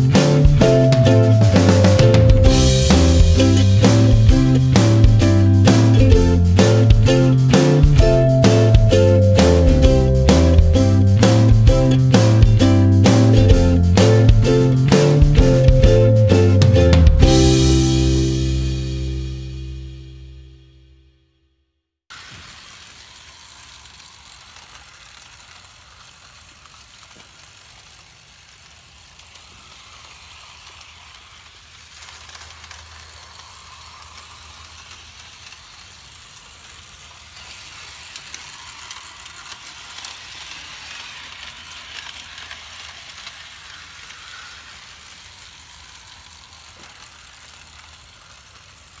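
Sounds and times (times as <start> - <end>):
wheels hissing on rail: 0.0 - 19.1, 22.1 - 49.0
model train motor hum: 22.1 - 49.0.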